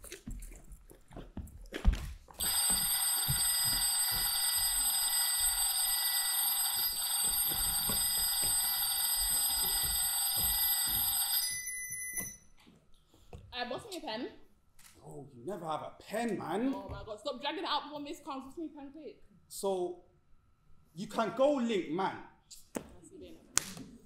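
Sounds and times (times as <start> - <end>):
electric bell ringing: 2.4 - 12.5.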